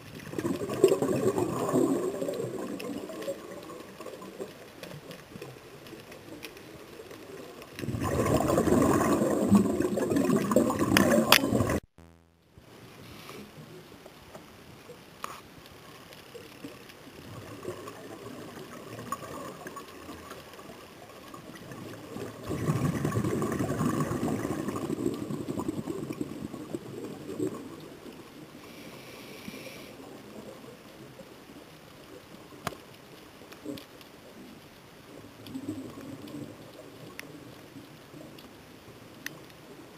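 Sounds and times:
low crackling background: 0.0s - 39.9s
exhaled regulator bubbles: 0.2s - 4.2s, 7.8s - 11.8s, 21.4s - 27.8s
short hiss: 13.0s - 13.6s.

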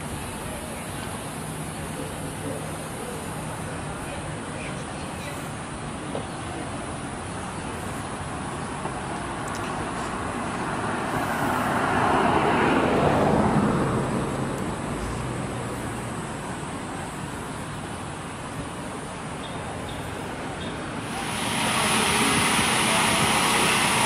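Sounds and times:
outdoor traffic noise: 0.0s - 24.0s
vehicle passing by: 9.8s - 16.2s.

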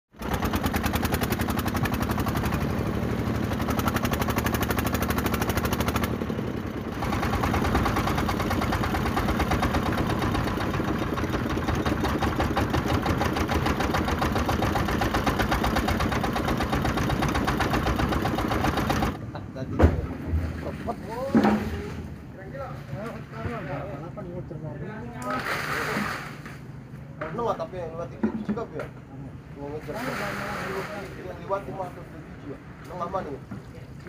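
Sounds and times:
boat engine chugging: 0.1s - 19.2s.

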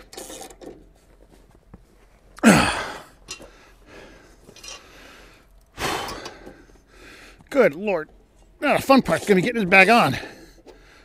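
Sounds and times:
ratchet and metal clicks: 0.0s - 0.8s
heavy breath out: 2.4s - 7.5s, 10.2s - 11.0s.

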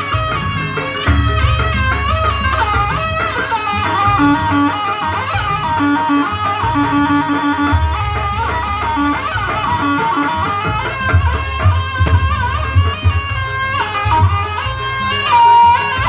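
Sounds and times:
repeated short mid-pitched notes: 5.8s - 15.2s.

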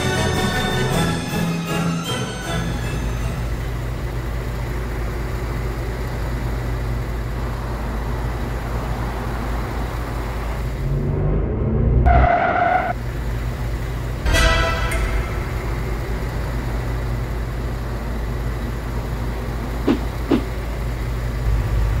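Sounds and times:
bus engine rumbling: 0.0s - 22.0s
loud bus horn blast: 14.3s - 16.4s.

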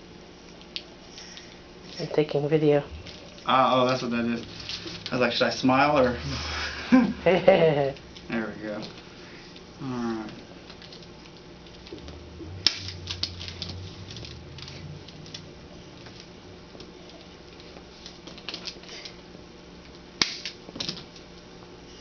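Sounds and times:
low hum: 0.0s - 20.7s
sharp clicks of chiropractic adjustment: 20.2s - 21.1s.

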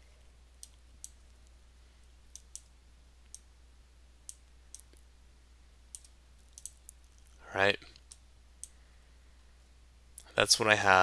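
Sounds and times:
faint steady low hum: 0.0s - 11.0s
computer mouse clicking: 2.3s - 3.5s, 5.9s - 8.8s.

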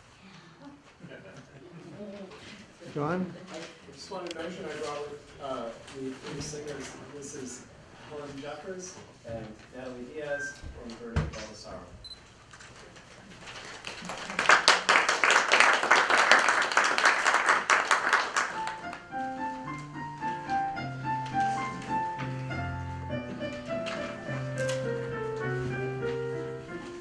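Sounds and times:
audience applauding: 13.6s - 19.1s
piano playing: 18.4s - 27.0s.

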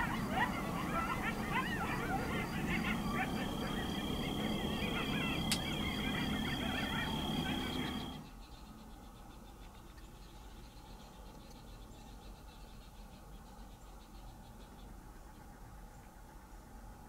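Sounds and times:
coyotes yipping and howling: 0.0s - 8.3s
sharp click: 5.5s - 5.7s.

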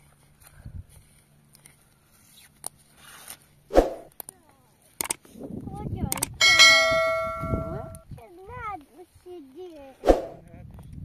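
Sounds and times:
bright bell ding: 6.4s - 8.0s.

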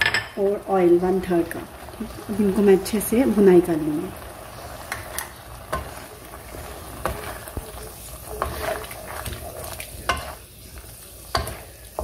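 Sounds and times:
stew sizzling in oil: 0.1s - 12.0s
spatula scraping a pan: 4.4s - 12.0s.

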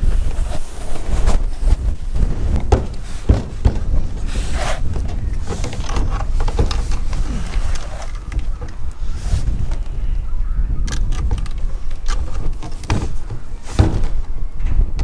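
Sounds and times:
wind on microphone: 0.0s - 15.0s
plastic pipe knocking and scraping: 1.0s - 9.9s, 11.2s - 15.0s.

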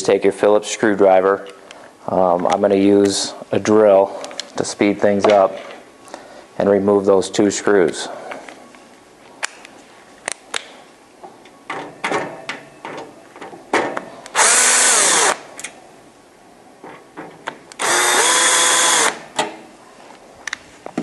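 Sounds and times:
cordless drill motor whine: 14.4s - 15.4s, 17.8s - 19.2s.

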